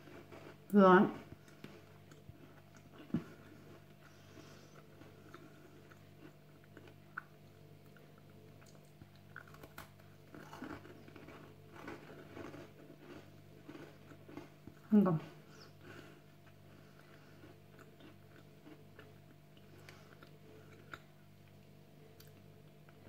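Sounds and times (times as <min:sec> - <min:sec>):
biscuit crunching: 0:00.0 - 0:23.0.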